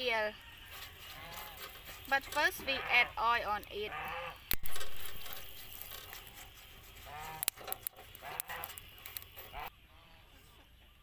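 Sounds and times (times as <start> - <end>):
brush clicking on grill bars: 0.7 - 2.6, 4.0 - 9.7
oil sizzling on hot grate: 4.3 - 9.6.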